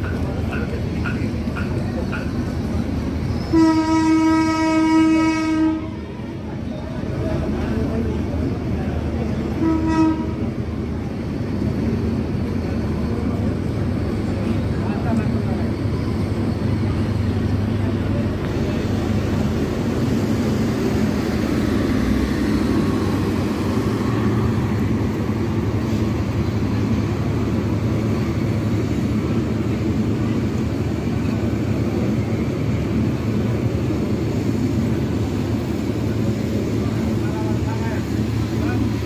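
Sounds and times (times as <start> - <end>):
train wheels rumbling on rails: 0.0 - 39.0.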